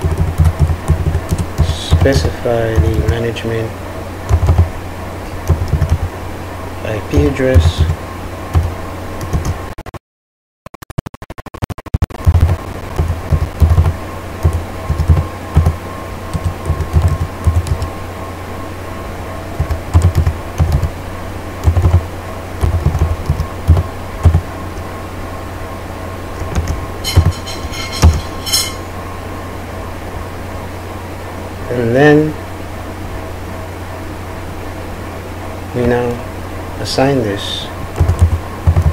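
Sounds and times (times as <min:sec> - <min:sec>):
keyboard typing: 0:00.0 - 0:02.2, 0:04.3 - 0:04.7, 0:05.4 - 0:06.0, 0:08.6 - 0:09.6, 0:12.3 - 0:17.9, 0:19.6 - 0:20.9, 0:21.6 - 0:22.0, 0:22.6 - 0:24.4, 0:38.0 - 0:38.9
steady low hum: 0:00.0 - 0:09.7, 0:12.2 - 0:38.9.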